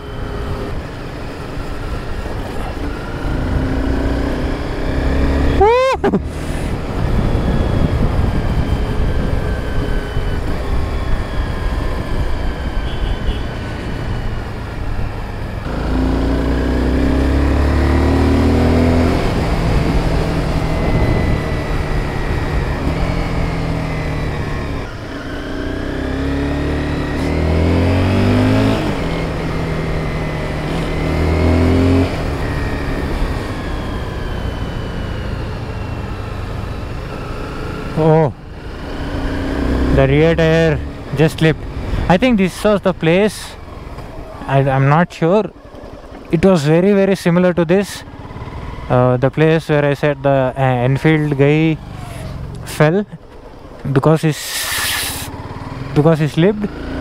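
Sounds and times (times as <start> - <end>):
motorcycle engine revving: 0.1 - 57.0
wind noise: 5.6 - 13.4, 18.5 - 23.7.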